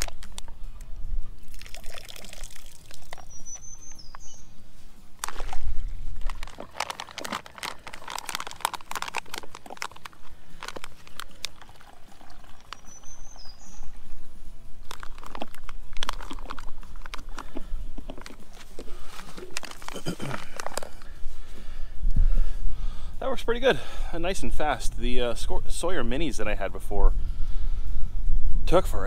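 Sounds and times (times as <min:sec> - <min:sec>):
plastic pouch crinkling: 0:00.0 - 0:00.5, 0:01.5 - 0:03.6, 0:05.2 - 0:13.4, 0:14.8 - 0:21.2
water trickling into plastic bottle: 0:01.4 - 0:04.2, 0:05.2 - 0:14.1, 0:14.8 - 0:21.0
short bird chirp: 0:03.2 - 0:04.5.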